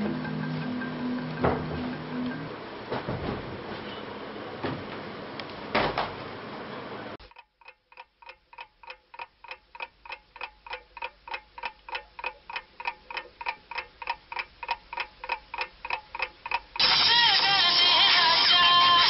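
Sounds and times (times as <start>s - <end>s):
clock ticking rapidly: 7.2s - 18.2s
music with singing: 16.8s - 19.0s.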